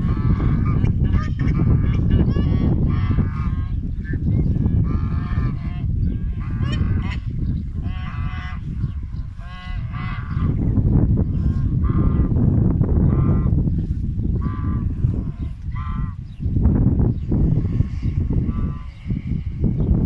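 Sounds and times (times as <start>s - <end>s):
ducks honking: 0.0s - 10.7s, 11.3s - 12.4s, 13.0s - 13.6s, 14.3s - 16.3s, 18.4s - 19.2s
steady low rumble: 0.0s - 20.0s.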